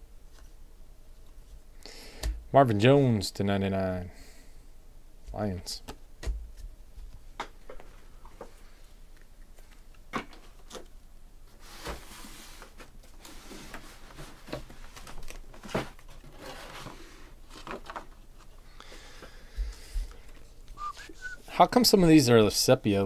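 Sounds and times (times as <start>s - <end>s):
rustling crinkle: 11.5s - 18.7s.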